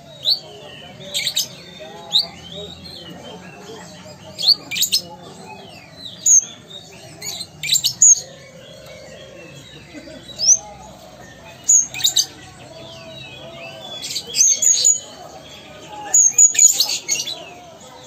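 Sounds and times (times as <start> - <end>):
bird chirping and twittering: 0.0 - 18.0.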